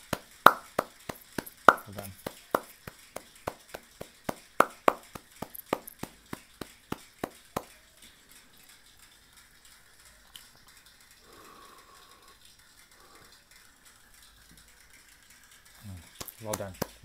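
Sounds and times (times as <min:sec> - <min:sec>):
people clapping: 0:00.0 - 0:08.0, 0:15.9 - 0:17.0.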